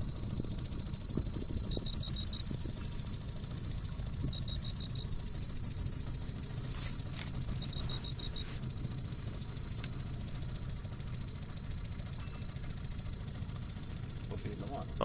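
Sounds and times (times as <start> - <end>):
outboard motor humming: 0.0 - 15.0
rapid high beeps: 1.7 - 2.5, 4.3 - 5.2, 7.5 - 8.6.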